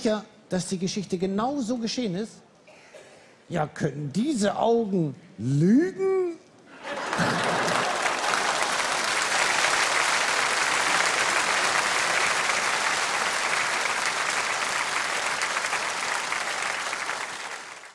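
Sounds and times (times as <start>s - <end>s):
audience applauding: 6.8s - 17.9s.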